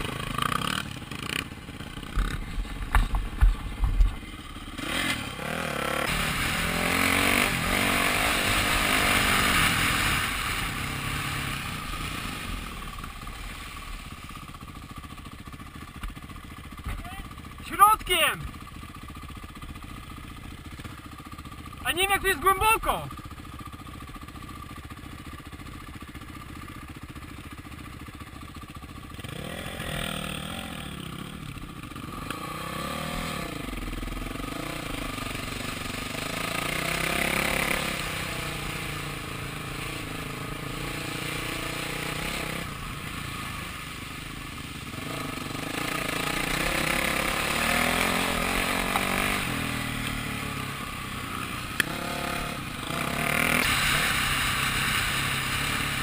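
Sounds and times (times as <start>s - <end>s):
dirt bike engine revving: 0.0s - 14.0s, 29.1s - 56.0s
water spraying: 53.3s - 55.8s.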